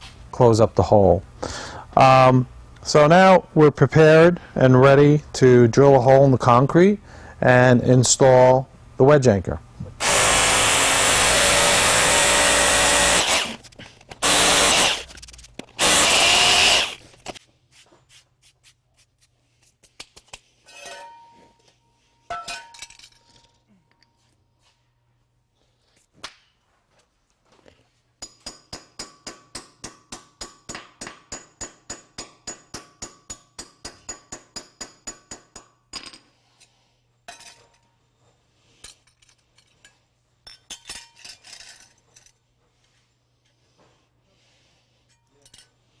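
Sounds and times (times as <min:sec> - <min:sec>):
metal clinks and knocks: 0:22.3 - 0:23.7, 0:38.8 - 0:42.4.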